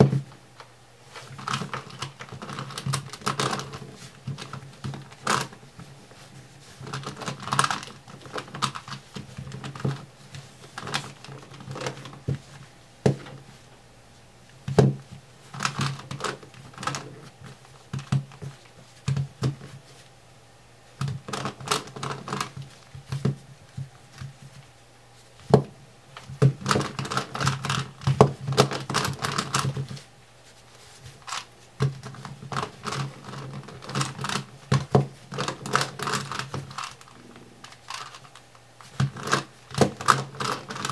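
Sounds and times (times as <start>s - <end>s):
plastic puzzle clicking: 31.2s - 40.9s.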